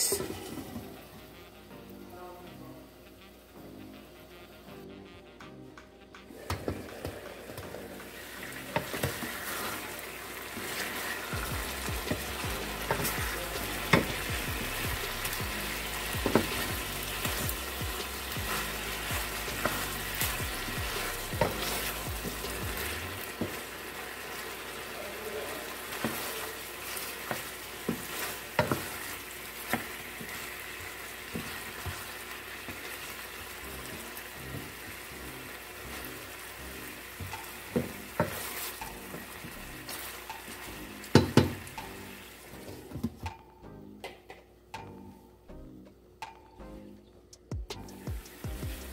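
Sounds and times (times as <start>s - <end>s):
chicken sizzling in a pan: 0.0s - 1.8s, 6.3s - 42.9s, 47.9s - 48.9s
wooden spoon knocking against pan: 27.3s - 28.9s, 41.1s - 41.9s.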